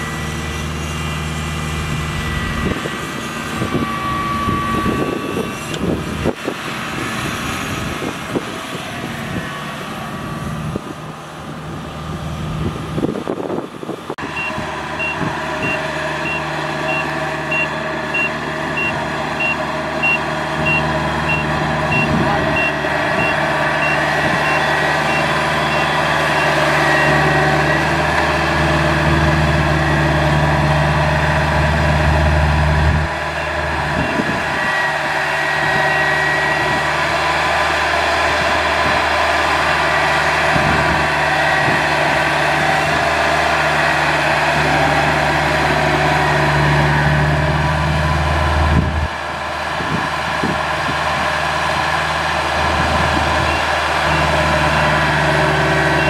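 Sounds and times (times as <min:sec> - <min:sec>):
diesel engine running: 0:00.0 - 0:56.0
high warning beeper: 0:14.2 - 0:27.9.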